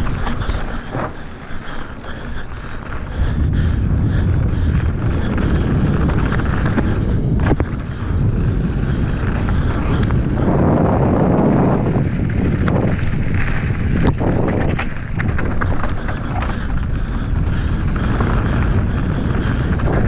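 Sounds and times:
bike clicking and rattling: 0.0s - 20.0s
bike tyres rolling over gravel: 0.0s - 20.0s
wind buffeting microphone: 0.0s - 20.0s.

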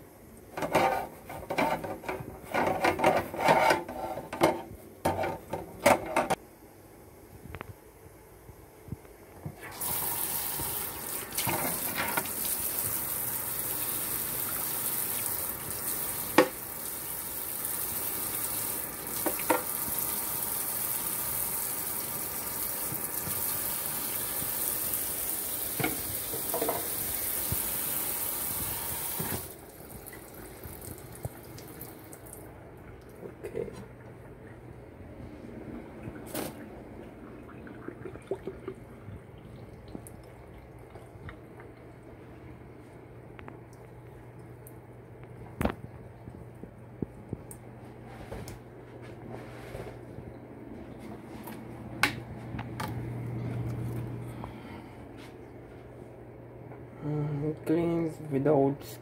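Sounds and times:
water running into sink: 9.6s - 33.2s, 36.0s - 41.8s
plastic knocking against sink: 25.8s - 26.9s.

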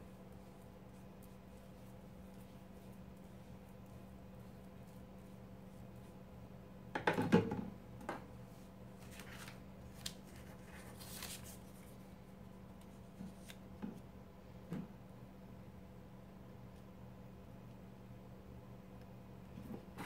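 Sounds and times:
paper rustling: 9.0s - 12.0s, 12.8s - 13.6s.

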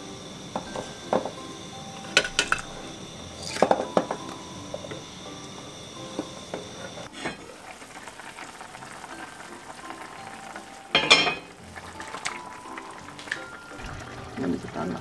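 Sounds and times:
braise simmering and sizzling: 0.0s - 15.0s
pot lid knock: 11.0s - 11.5s.

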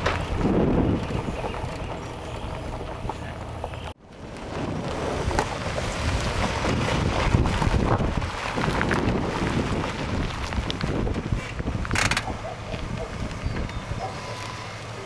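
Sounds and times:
wind buffeting microphone: 0.0s - 3.1s, 4.2s - 14.2s
pickup truck engine rumble: 0.0s - 15.0s
road noise: 0.0s - 15.0s.

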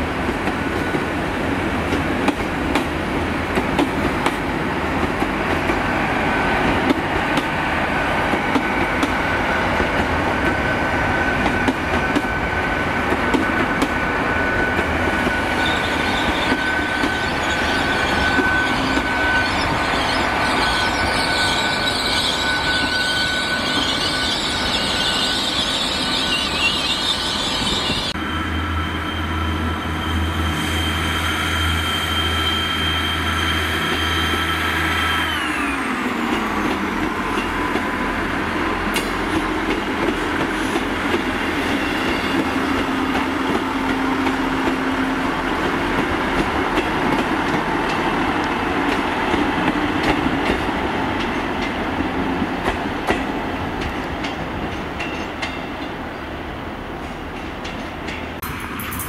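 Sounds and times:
train rolling past: 0.0s - 59.0s
high ringing tone from wheels: 14.4s - 35.9s.

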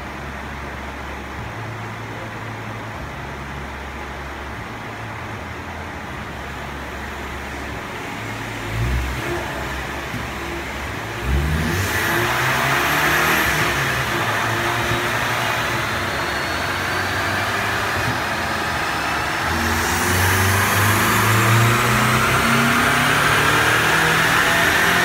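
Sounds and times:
car engine revving at full throttle: 6.1s - 25.0s
high whine rising in pitch: 6.7s - 25.0s.

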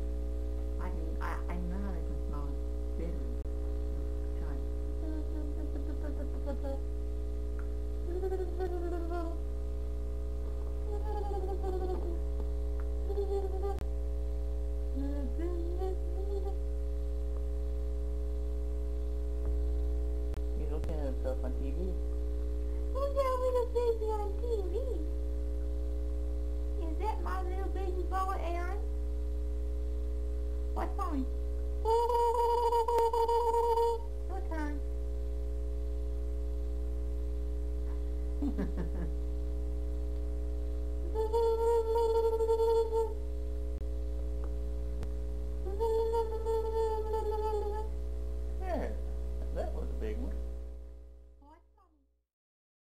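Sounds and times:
low electrical hum: 0.0s - 52.2s
soft voice sounds: 4.3s - 6.9s, 8.0s - 9.4s, 10.8s - 12.3s, 13.0s - 13.8s, 14.9s - 16.6s, 22.9s - 25.2s, 30.8s - 34.9s, 41.0s - 43.2s, 45.6s - 48.0s.

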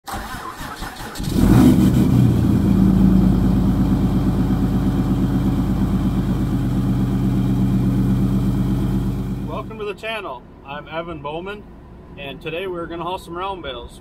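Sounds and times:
truck engine idling: 1.4s - 9.9s.

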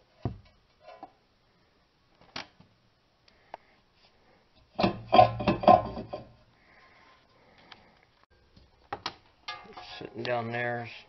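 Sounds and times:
loud metallic clanks and knocks: 4.8s - 6.3s.

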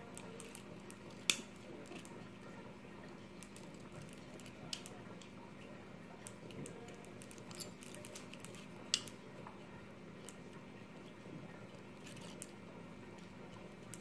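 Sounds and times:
pliers twisting wire clicks: 0.1s - 2.2s, 6.2s - 9.2s.

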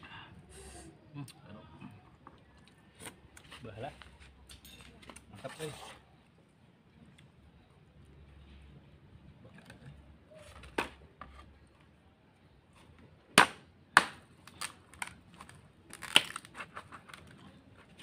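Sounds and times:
machete chopping bamboo: 13.3s - 15.1s, 15.9s - 16.7s.

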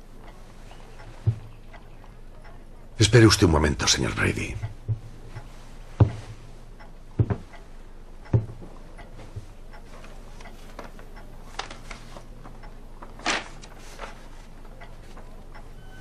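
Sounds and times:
low steady hum: 0.0s - 16.0s
knocks and thumps: 1.2s - 1.5s, 4.6s - 6.4s, 7.2s - 7.6s, 8.3s - 9.5s.

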